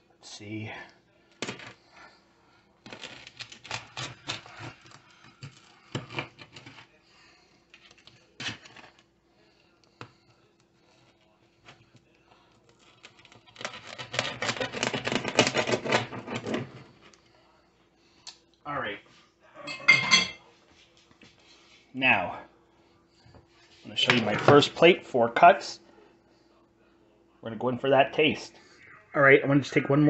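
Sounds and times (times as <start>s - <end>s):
pizza cutter scraping crust: 12.8s - 16.8s.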